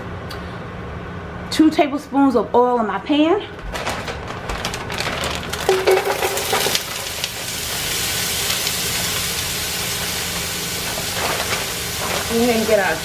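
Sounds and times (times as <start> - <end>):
chicken pieces clattering into pot: 3.7 - 7.4
oil sizzling: 5.4 - 13.0.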